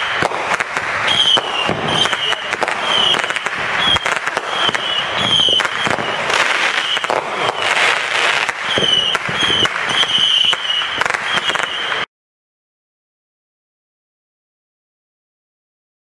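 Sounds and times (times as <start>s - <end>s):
firework whistles: 0.0s - 12.1s
fireworks crackling and popping: 0.0s - 12.1s.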